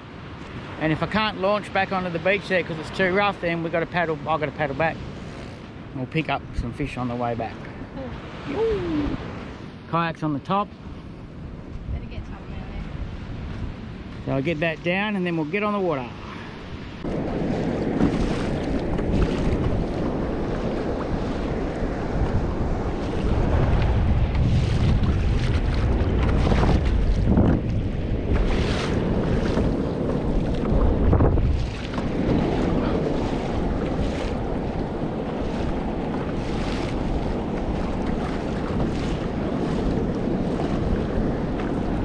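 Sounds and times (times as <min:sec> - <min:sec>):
wind buffeting microphone: 0:00.0 - 0:09.8, 0:10.5 - 0:42.0
water splashing against hull: 0:15.5 - 0:42.0.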